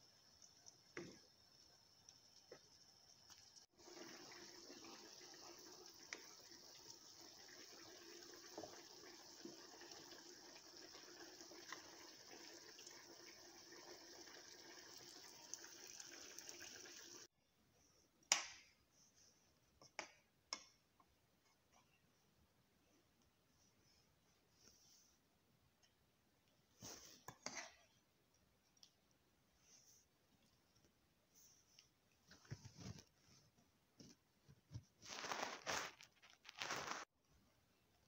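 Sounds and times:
curry simmering with pops: 0.0s - 17.3s.

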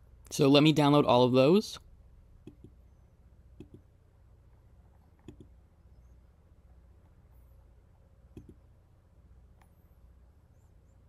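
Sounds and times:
computer mouse clicking: 2.4s - 2.8s, 3.6s - 3.9s, 5.2s - 5.6s, 8.3s - 8.6s.

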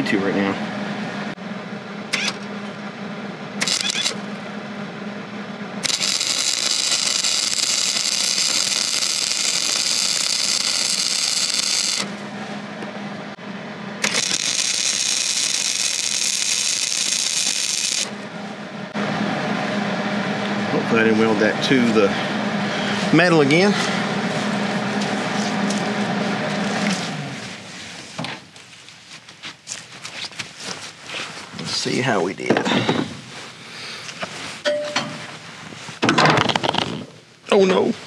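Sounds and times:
low steady hum: 0.0s - 29.4s, 30.4s - 36.0s
welding arc crackle: 3.6s - 4.2s, 5.8s - 12.2s, 14.0s - 18.1s.

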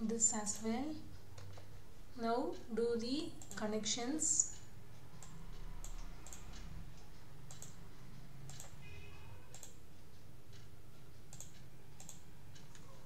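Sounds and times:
low steady hum: 0.0s - 13.0s
computer mouse clicking: 0.5s - 1.7s, 3.3s - 9.9s, 10.5s - 13.0s.

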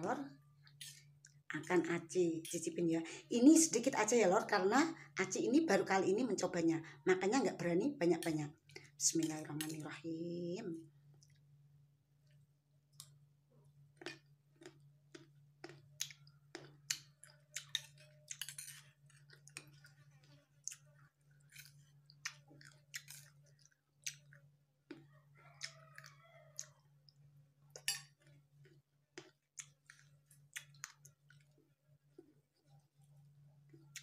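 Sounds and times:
faint steady hum: 0.0s - 34.0s
person chewing: 13.9s - 34.0s.

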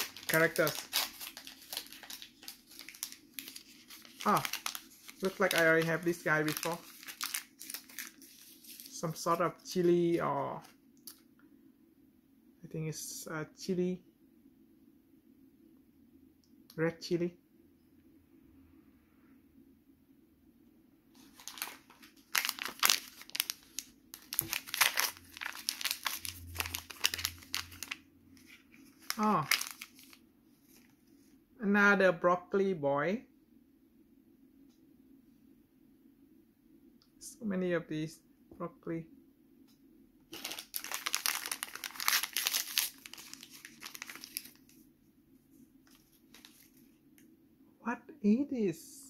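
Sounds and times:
plastic packet crinkling and tearing: 0.0s - 9.8s, 21.2s - 30.8s, 40.3s - 44.8s, 45.9s - 47.0s.

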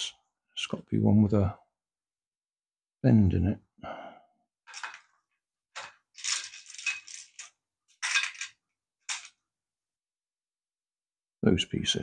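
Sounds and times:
plastic parts rattling: 4.6s - 9.4s.

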